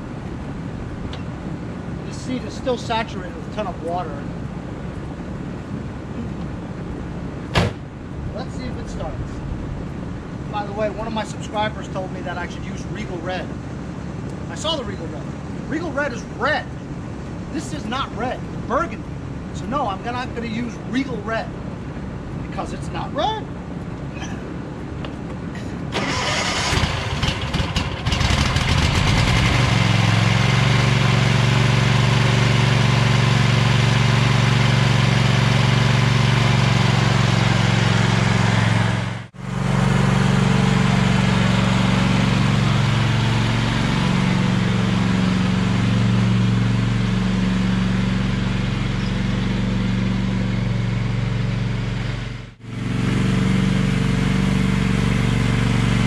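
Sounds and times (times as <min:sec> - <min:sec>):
lawn tractor engine starting: 0:25.9 - 0:56.0.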